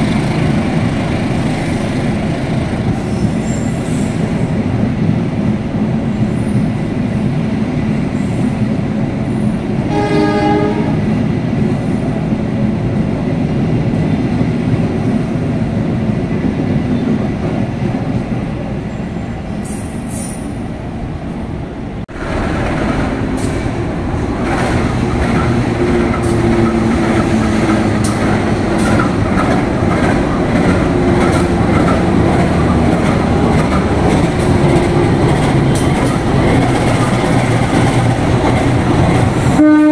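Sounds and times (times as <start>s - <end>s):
train horn blast: 9.9s - 11.1s, 39.5s - 39.9s.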